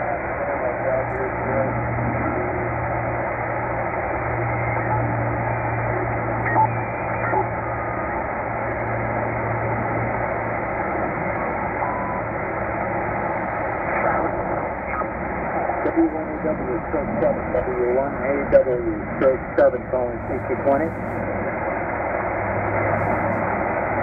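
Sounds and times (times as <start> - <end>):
radio static hiss: 0.0 - 3.5, 13.3 - 21.6, 22.5 - 24.0
low hum: 0.0 - 24.0
radio whistling tones: 6.4 - 8.1.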